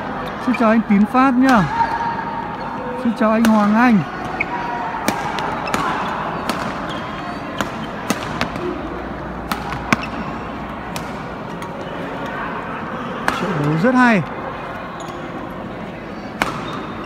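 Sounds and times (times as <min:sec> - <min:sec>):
sports hall hubbub: 0:00.0 - 0:17.0
badminton racket hitting shuttlecock: 0:05.0 - 0:08.7, 0:09.4 - 0:11.7, 0:16.4 - 0:17.0.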